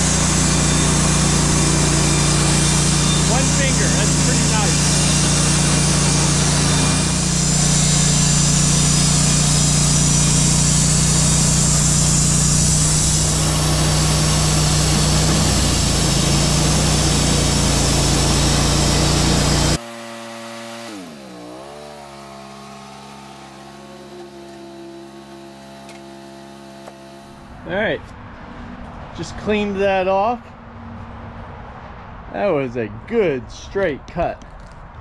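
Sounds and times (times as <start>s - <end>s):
gas engine running: 0.0s - 27.8s
band saw cutting log: 0.0s - 28.1s.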